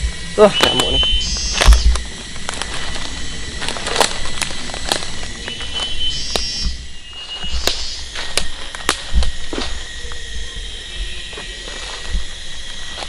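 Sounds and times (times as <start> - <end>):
high whistled calls: 0.4 - 2.0, 5.1 - 13.0
footsteps crunching through leaves: 0.5 - 13.0
twigs snapping: 0.6 - 10.3.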